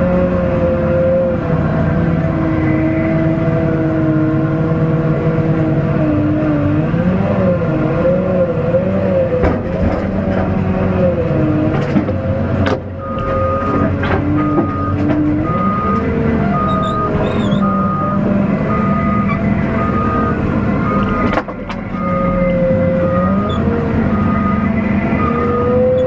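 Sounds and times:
diesel engine: 0.0 - 26.0
sharp knocks and clunks: 9.4 - 10.7, 11.6 - 16.1, 21.1 - 22.0
reversing alarm beeping: 13.0 - 26.0.

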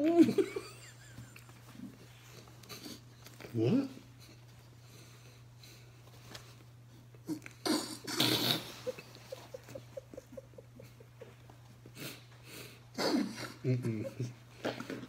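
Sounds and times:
muffled giggles: 0.0 - 1.9, 8.4 - 12.1, 13.0 - 15.0.

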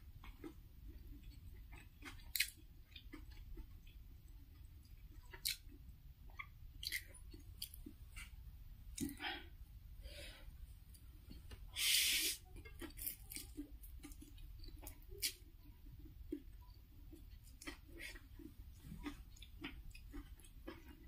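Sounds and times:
wet chewing and lip smacks: 0.2 - 8.3, 12.5 - 21.0.

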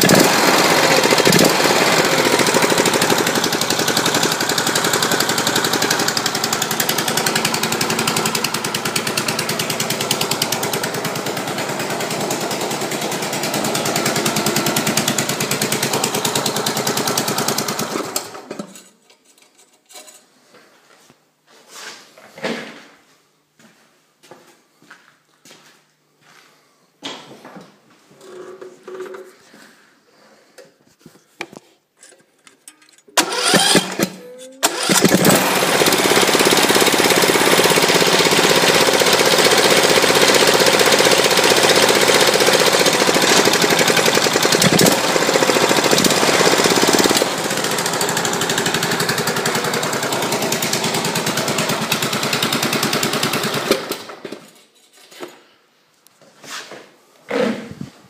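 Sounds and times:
mower engine starting and running: 0.0 - 19.0, 28.1 - 30.3, 31.5 - 54.6.

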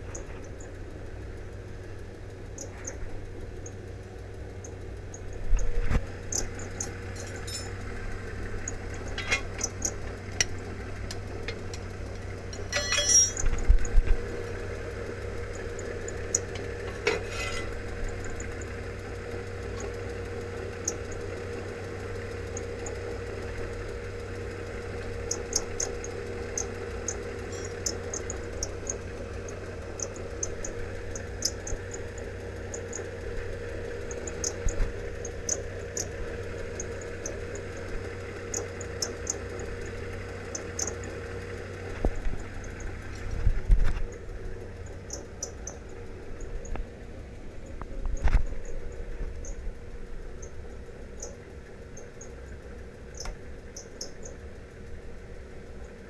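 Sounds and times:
low hum: 0.0 - 56.0
metal tools clinking on concrete: 7.1 - 7.8, 9.2 - 9.5, 12.5 - 13.5, 16.9 - 17.8
ringing metal clank: 7.2 - 7.8, 9.2 - 9.6, 12.5 - 13.6, 16.9 - 17.8, 27.5 - 27.8.

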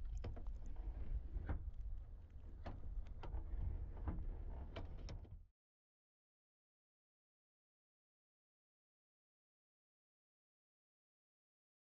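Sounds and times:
small clicks and ticks: 0.0 - 3.6
faint low wind rumble: 0.0 - 5.4.

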